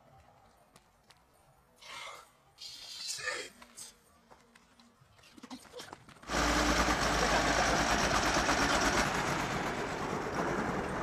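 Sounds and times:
heavy vehicle passing by: 0:06.3 - 0:11.0.

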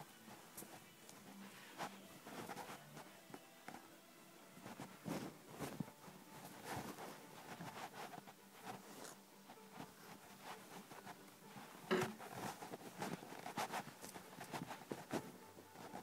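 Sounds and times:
handling clicks and rustling: 0:04.6 - 0:16.0.

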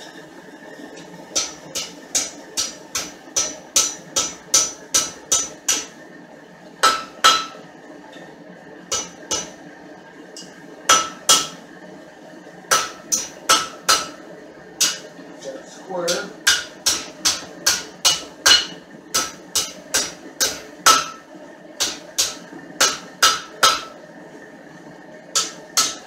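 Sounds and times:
hammer striking metal on anvil: 0:01.4 - 0:05.9, 0:06.8 - 0:07.6, 0:08.9 - 0:09.5, 0:10.9 - 0:11.6, 0:12.7 - 0:14.2, 0:14.8 - 0:15.1, 0:16.1 - 0:21.2, 0:21.8 - 0:23.9, 0:25.4 - 0:26.0.

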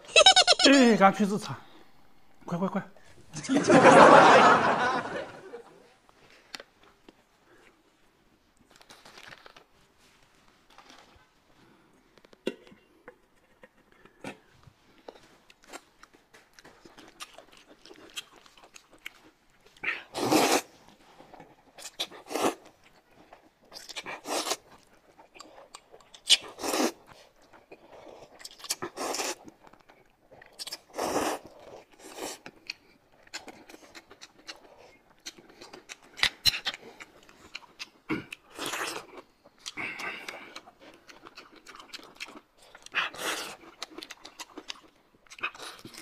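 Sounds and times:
quiet chewing: 0:06.1 - 0:46.0
loud noodle slurps: 0:19.9 - 0:20.7, 0:21.9 - 0:22.6, 0:24.1 - 0:24.6, 0:26.4 - 0:27.0, 0:28.8 - 0:29.4, 0:30.9 - 0:32.4.

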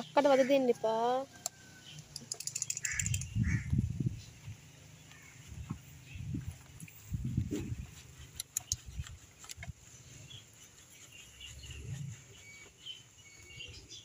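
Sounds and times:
birds chirping faintly: 0:00.0 - 0:14.0
sharp clicks: 0:01.4 - 0:03.4, 0:08.2 - 0:09.8.

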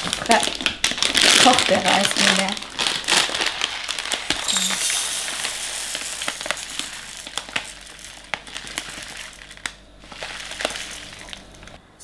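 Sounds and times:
plastic bag crinkling: 0:00.0 - 0:11.8
dry rice pouring into plastic jug: 0:03.3 - 0:11.5.

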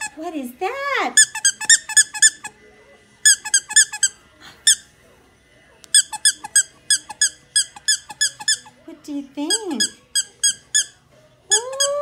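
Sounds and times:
squeaky dog toy squeaking: 0:00.0 - 0:00.2, 0:01.1 - 0:02.6, 0:03.2 - 0:04.9, 0:05.9 - 0:08.8, 0:09.4 - 0:12.0.

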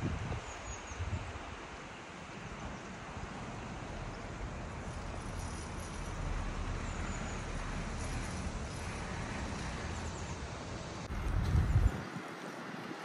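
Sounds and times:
wind rush on microphone: 0:00.0 - 0:01.8, 0:11.1 - 0:13.0.

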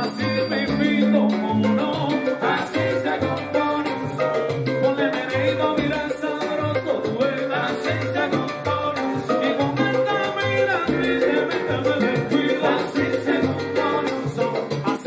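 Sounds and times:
pulsing bass line: 0:00.0 - 0:04.8
live salsa band playing: 0:00.0 - 0:15.0.

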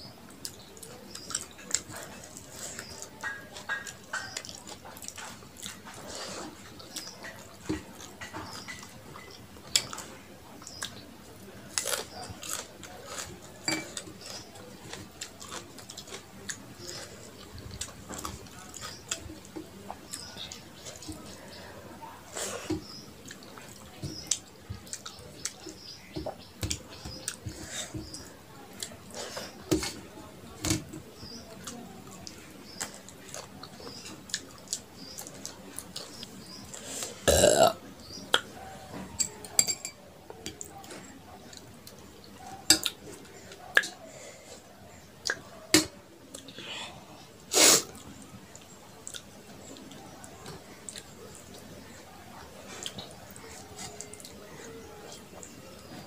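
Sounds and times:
chewing and mouth smacks: 0:00.4 - 0:11.0, 0:31.6 - 0:36.8, 0:40.4 - 0:43.1, 0:43.7 - 0:44.0, 0:47.9 - 0:51.7
loud burp: 0:37.2 - 0:37.8.

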